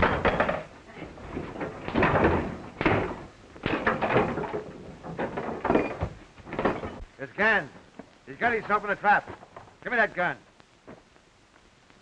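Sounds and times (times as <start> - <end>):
fistfight thuds and scuffling: 0.0 - 7.0.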